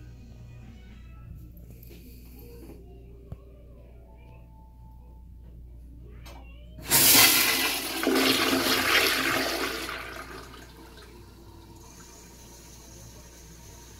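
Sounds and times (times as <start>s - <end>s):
toilet flushing: 6.8s - 13.9s.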